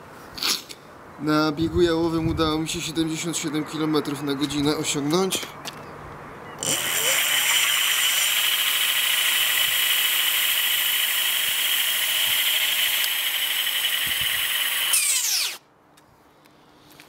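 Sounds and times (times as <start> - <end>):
electric hub motor whining: 6.6 - 15.6.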